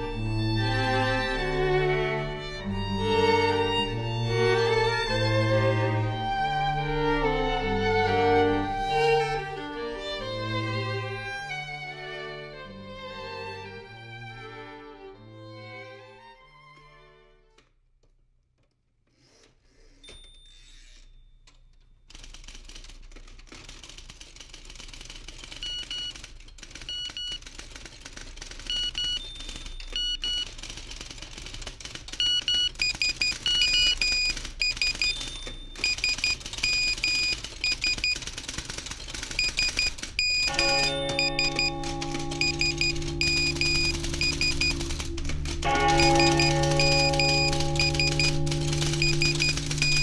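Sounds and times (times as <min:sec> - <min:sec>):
rapid clicking clatter: 0:21.5 - 0:50.0
short high electronic beeps: 0:39.4 - 0:50.0.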